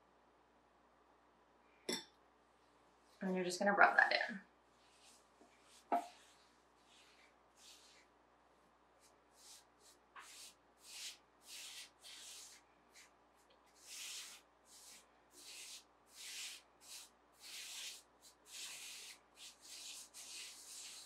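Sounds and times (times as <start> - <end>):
hands brushing flour on bread: 4.7 - 21.0.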